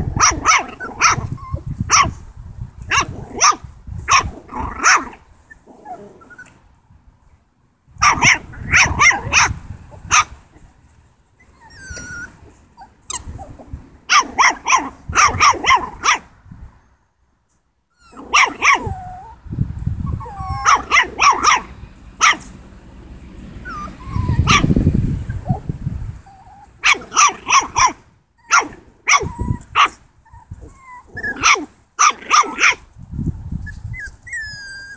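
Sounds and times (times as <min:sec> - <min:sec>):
puppy yapping: 0:00.0 - 0:02.2, 0:08.0 - 0:10.4, 0:11.4 - 0:16.3, 0:18.0 - 0:19.4, 0:20.1 - 0:22.5, 0:23.6 - 0:25.7, 0:26.3 - 0:32.8.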